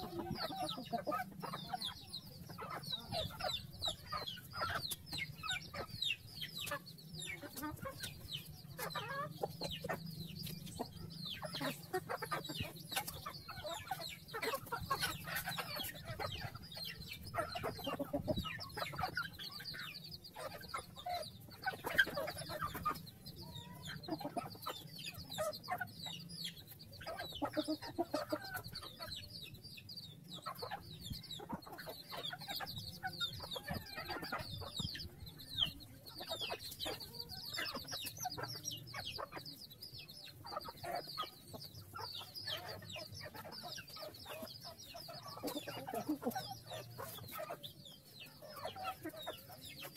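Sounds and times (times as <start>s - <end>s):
chickens clucking: 0.0s - 49.9s
chicks peeping: 0.0s - 49.9s.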